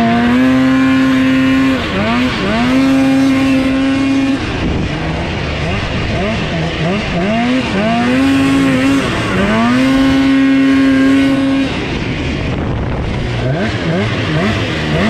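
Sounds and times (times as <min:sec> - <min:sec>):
snowmobile engine revving: 0:00.0 - 0:15.0.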